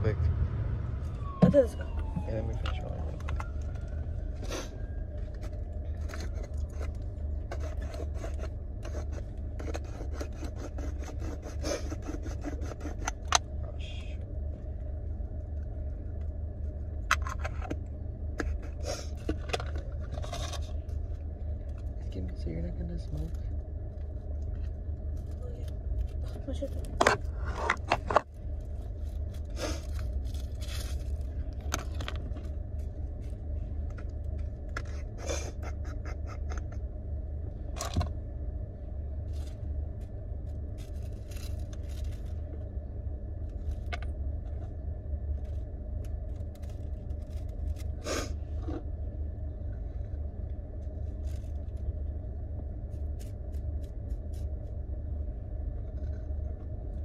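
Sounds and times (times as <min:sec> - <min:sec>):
car rumble: 0:00.0 - 0:57.0
rolling paper crinkling: 0:23.2 - 0:35.2, 0:39.2 - 0:42.8, 0:43.4 - 0:48.0, 0:50.7 - 0:54.8.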